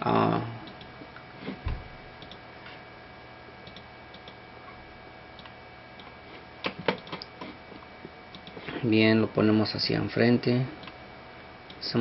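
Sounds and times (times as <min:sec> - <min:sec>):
faint hum and hiss: 0:00.0 - 0:12.0
computer clicks: 0:02.2 - 0:02.4, 0:03.6 - 0:04.4, 0:05.4 - 0:07.3, 0:08.3 - 0:08.6.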